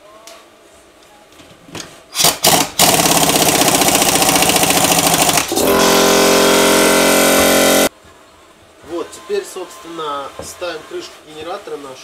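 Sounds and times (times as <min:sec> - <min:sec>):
impact wrench hammering: 0:02.2 - 0:07.9.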